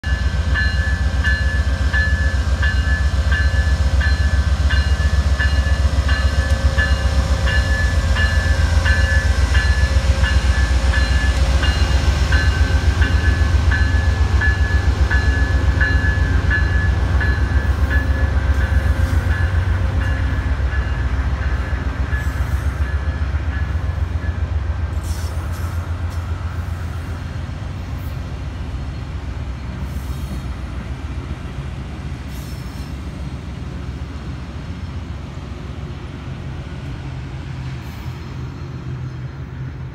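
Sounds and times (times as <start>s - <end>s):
locomotive bell ringing: 0.0s - 24.5s
diesel locomotive engine rumble: 0.0s - 39.9s.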